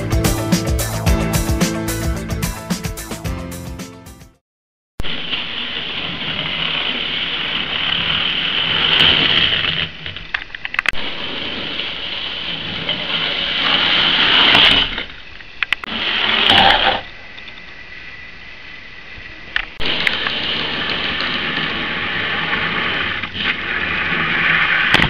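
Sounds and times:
model train motor whirring: 5.5s - 17.0s, 19.8s - 25.0s.

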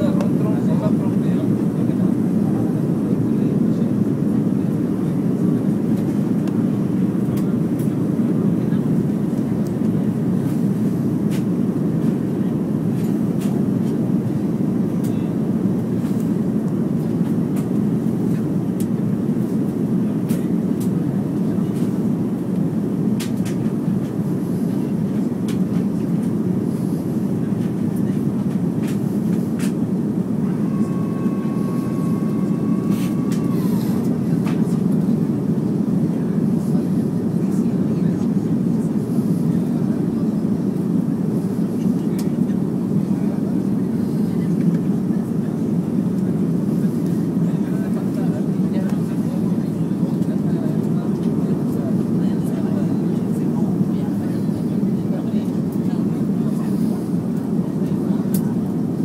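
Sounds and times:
airplane cabin engine rumble: 0.0s - 59.0s
thin steady whine: 24.0s - 45.2s.

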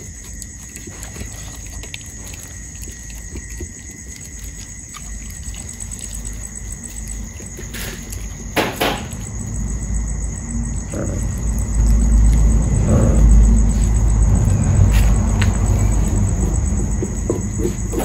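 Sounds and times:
crickets chirring: 0.0s - 18.0s
puppies chewing and lapping: 0.0s - 18.0s.

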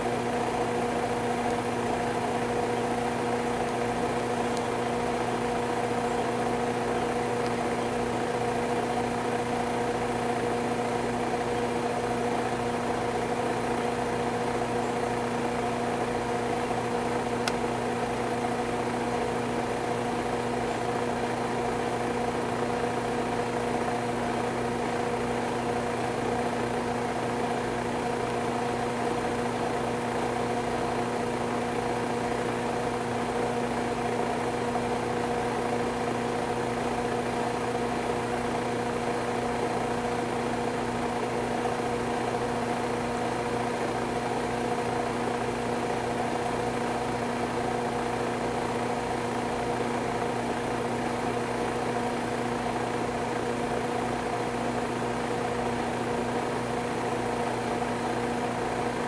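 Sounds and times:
motor humming: 0.0s - 59.0s.

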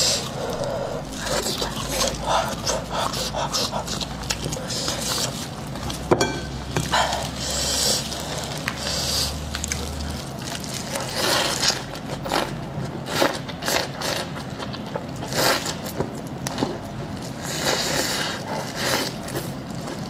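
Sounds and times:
crunchy bites and chewing: 0.0s - 6.1s, 6.7s - 20.0s.

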